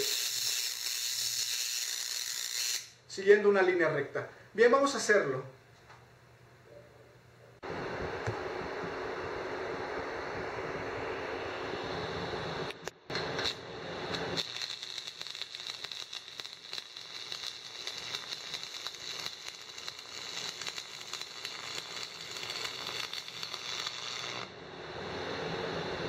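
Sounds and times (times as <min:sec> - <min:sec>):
welding arc crackling and sizzling: 0:00.0 - 0:03.0, 0:12.4 - 0:24.6.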